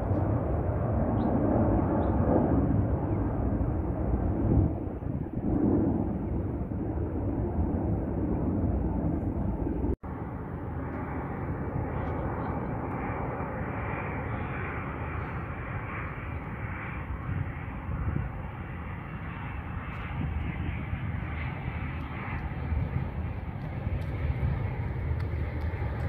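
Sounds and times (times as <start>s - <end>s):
low rumble: 0.0s - 13.6s
jet engines roaring: 0.0s - 26.0s.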